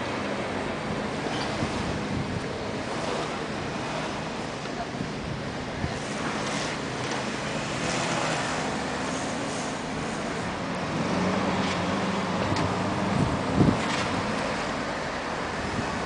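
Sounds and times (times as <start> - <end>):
road traffic: 0.0 - 16.0
wind on microphone: 0.4 - 4.2, 10.2 - 16.0.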